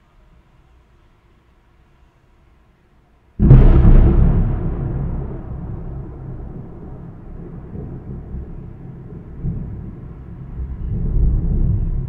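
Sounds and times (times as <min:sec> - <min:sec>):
rolling thunder: 0:03.4 - 0:12.0.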